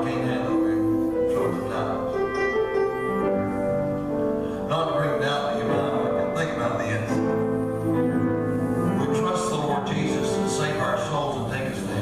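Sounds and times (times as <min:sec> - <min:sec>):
piano playing hymn: 0:00.0 - 0:12.0.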